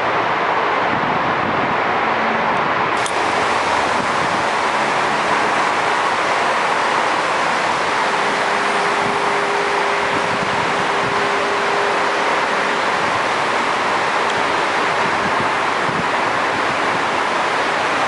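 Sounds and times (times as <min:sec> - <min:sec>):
highway traffic hiss: 0:00.0 - 0:18.0.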